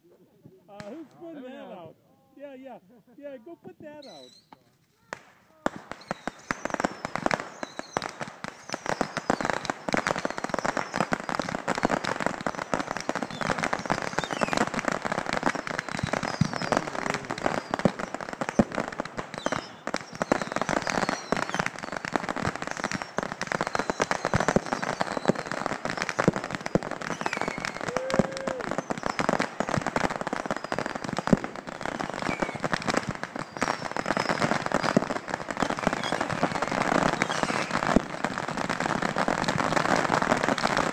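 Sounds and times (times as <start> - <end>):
fireworks crackling and banging: 0.4 - 40.9.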